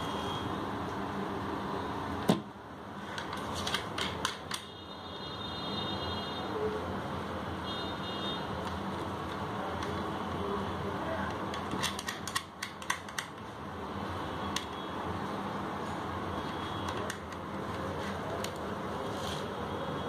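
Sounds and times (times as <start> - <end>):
wire connector clicks and rattles: 11.3 - 13.4.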